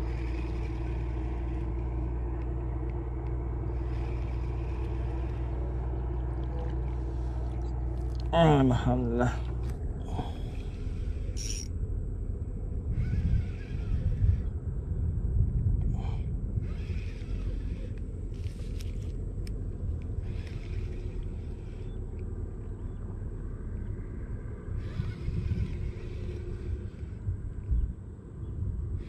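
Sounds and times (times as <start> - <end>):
wind rumble on microphone: 9.5 - 29.0.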